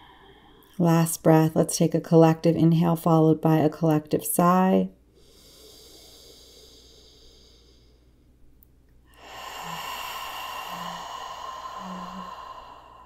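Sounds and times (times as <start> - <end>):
woman breathing in: 0.0 - 0.7, 5.2 - 8.4, 9.1 - 13.0
long breathy sigh: 9.1 - 13.0.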